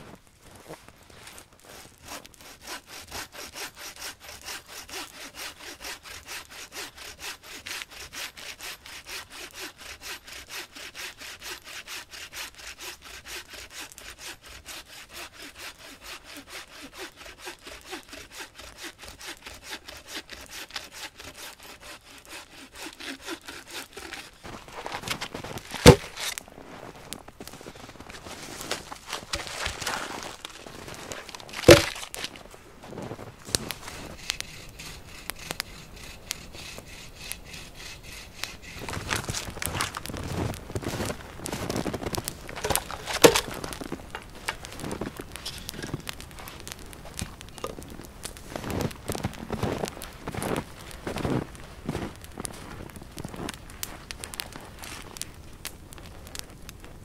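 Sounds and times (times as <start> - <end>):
bow saw cutting log: 1.2 - 26.4, 27.7 - 51.5
sharp wooden knock: 25.8 - 26.1, 31.5 - 32.0, 42.6 - 43.5.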